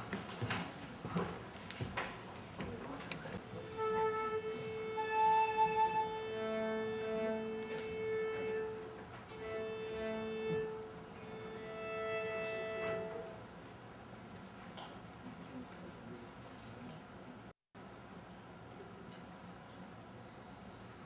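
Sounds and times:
violin and cello playing: 0:03.5 - 0:13.4.

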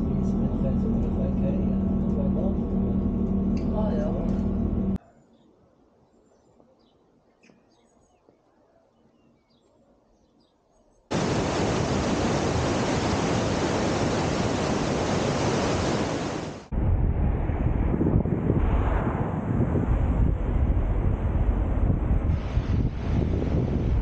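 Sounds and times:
low wind rumble: 0:00.0 - 0:05.0, 0:11.1 - 0:24.0
faint bird chirps: 0:05.0 - 0:11.1.

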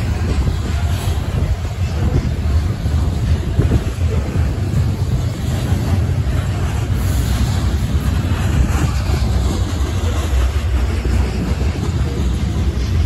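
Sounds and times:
freight train wheels rumbling: 0:00.0 - 0:13.0.

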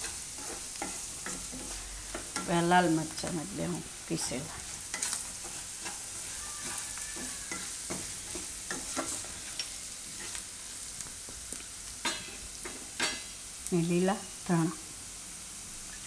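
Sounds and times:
wooden spatula scraping a pan: 0:00.0 - 0:03.3, 0:04.2 - 0:11.4
vegetables sizzling in oil: 0:00.0 - 0:16.0.

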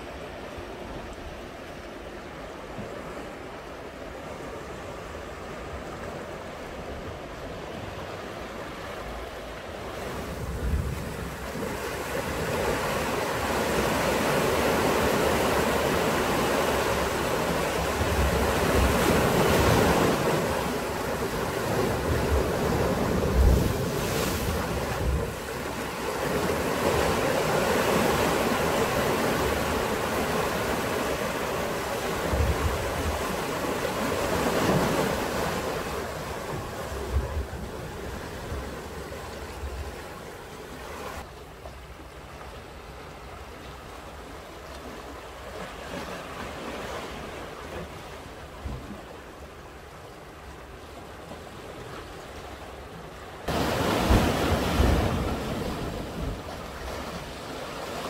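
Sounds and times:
sea waves breaking on rocks: 0:09.7 - 0:41.3, 0:50.7 - 0:58.0.

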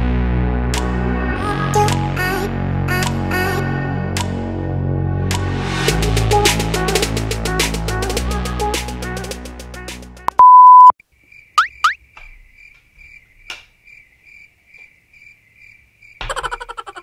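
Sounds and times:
loud steady beep: 0:10.4 - 0:11.0.

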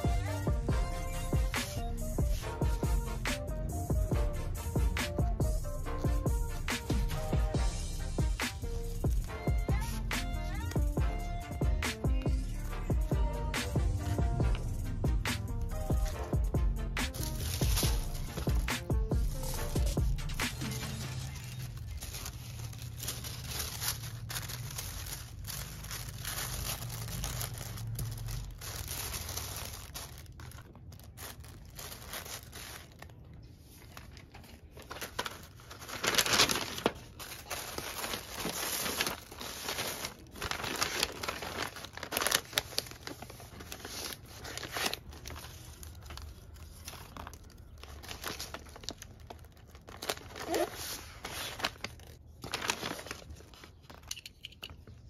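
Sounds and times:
tissue paper rustling and crinkling: 0:17.1 - 0:54.1
paper mailer bag crinkling: 0:17.1 - 0:55.0.

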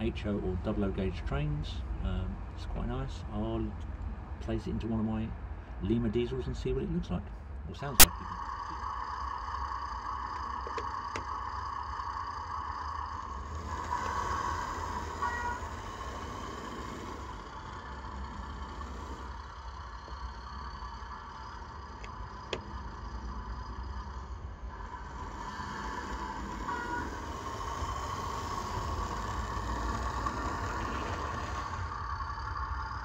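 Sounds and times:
model train diesel engine sounds: 0:00.0 - 0:33.0
steady low hum: 0:00.0 - 0:33.0.

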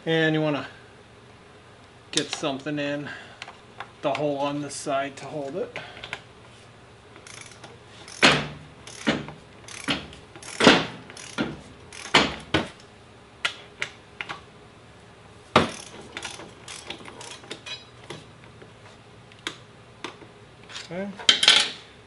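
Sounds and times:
hand ratchet clicking: 0:07.2 - 0:12.2, 0:15.7 - 0:17.8.

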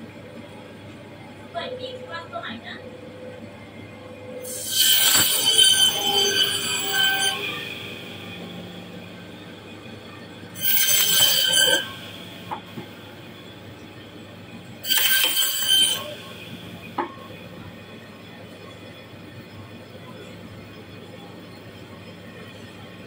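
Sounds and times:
saw blade screeching: 0:04.4 - 0:09.0, 0:10.5 - 0:12.6, 0:14.8 - 0:17.0
band saw humming: 0:04.5 - 0:09.1, 0:10.5 - 0:12.8.

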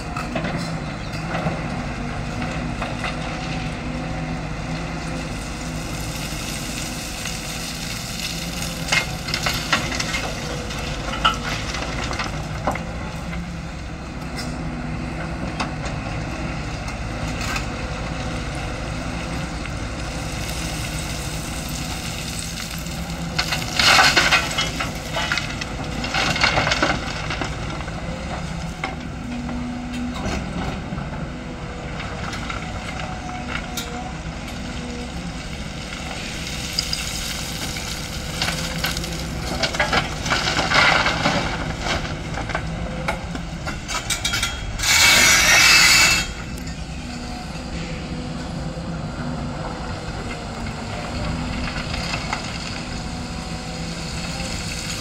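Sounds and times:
diesel engine running: 0:00.0 - 0:55.0
soil and stone pouring into truck: 0:05.2 - 0:13.0, 0:17.6 - 0:28.5, 0:35.4 - 0:46.7.

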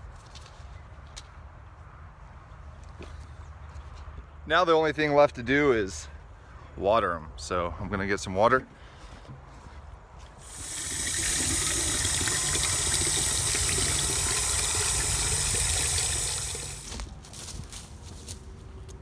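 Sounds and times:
water gushing into watering can: 0:10.4 - 0:16.9.

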